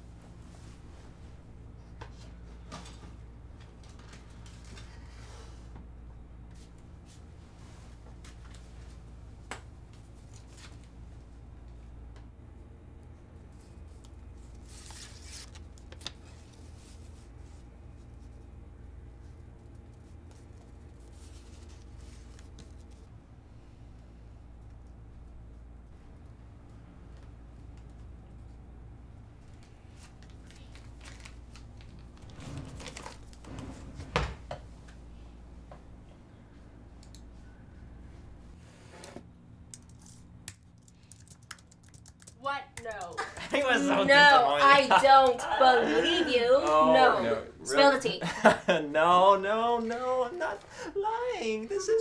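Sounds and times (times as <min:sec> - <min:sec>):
low room hum: 0:00.0 - 0:52.0
paper rustling: 0:13.6 - 0:17.6, 0:29.6 - 0:33.5
wooden chair scraping on floor: 0:32.2 - 0:34.6.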